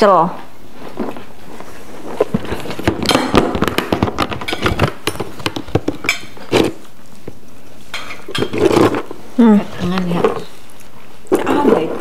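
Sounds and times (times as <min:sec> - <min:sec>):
plates and cutlery clinking: 0:02.8 - 0:06.8, 0:07.9 - 0:09.1.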